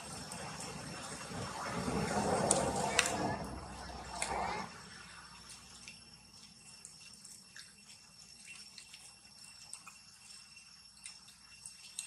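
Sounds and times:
high-pitched whine: 0.0s - 5.3s
light ticks and rustles: 5.4s - 12.0s.

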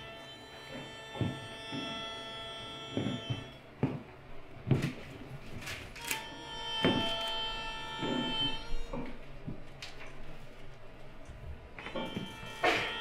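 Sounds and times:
electric violin sustained notes: 0.0s - 3.6s, 6.0s - 9.2s, 11.8s - 13.0s
dull knocks and thuds: 2.9s - 5.0s, 6.8s - 7.2s.

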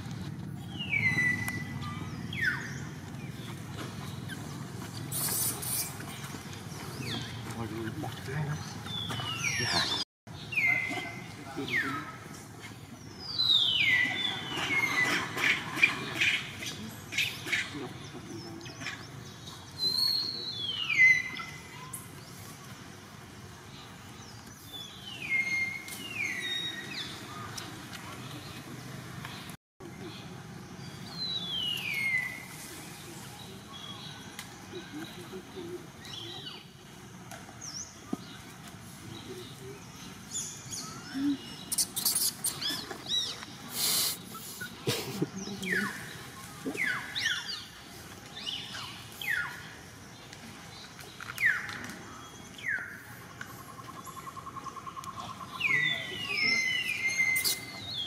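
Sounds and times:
baby monkey squeaking: 41.7s - 43.3s.

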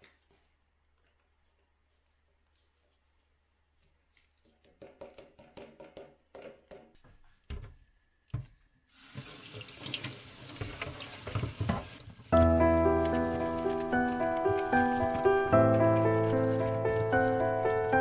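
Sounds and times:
tap water splashing: 9.1s - 12.1s.

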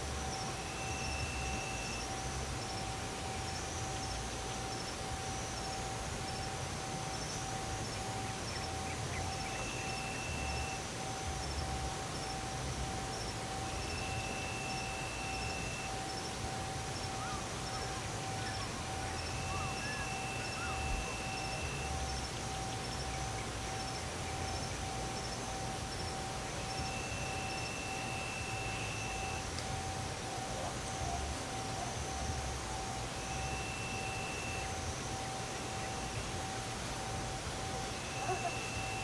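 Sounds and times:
crickets chirping: 0.0s - 39.0s
higher insect trill: 0.0s - 39.0s
steady low hum: 0.0s - 39.0s.

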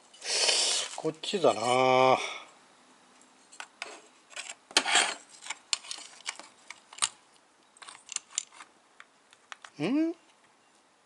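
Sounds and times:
small metal parts clicking: 7.8s - 8.7s.

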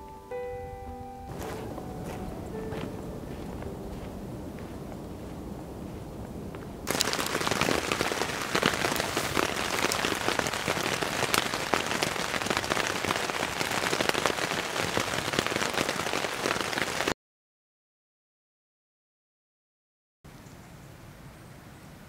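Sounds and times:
rain on a tent: 3.3s - 17.2s.

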